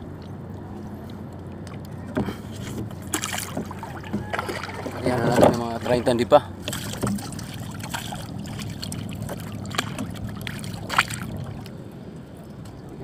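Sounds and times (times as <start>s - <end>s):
water lapping: 0.9s - 13.0s
paddle strokes: 1.0s - 11.7s
short knocks on canoe: 2.1s - 8.0s.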